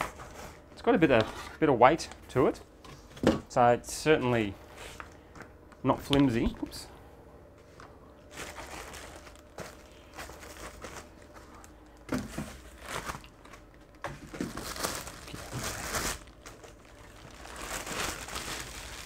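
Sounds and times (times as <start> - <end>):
packaging crinkling and rustling: 8.2 - 19.0.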